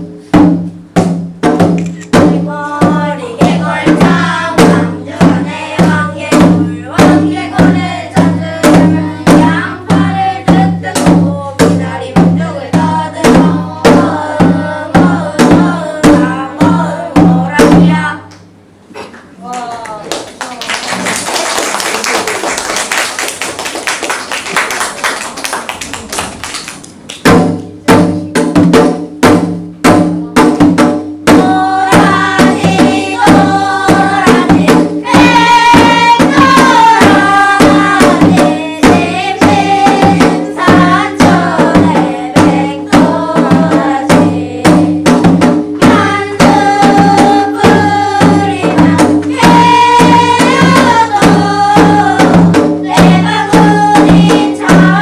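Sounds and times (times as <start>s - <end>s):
hourglass drum beat: 0.0s - 18.2s, 27.2s - 55.0s
children's choir singing: 2.1s - 18.3s, 31.3s - 55.0s
even clapping-like noise: 19.2s - 27.8s.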